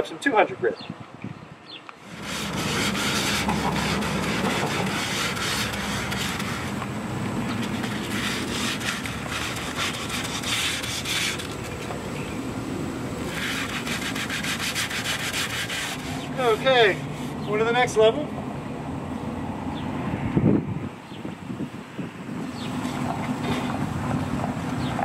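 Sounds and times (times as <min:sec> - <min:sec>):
hand sanding strokes: 0:02.0 - 0:12.0, 0:13.2 - 0:17.7.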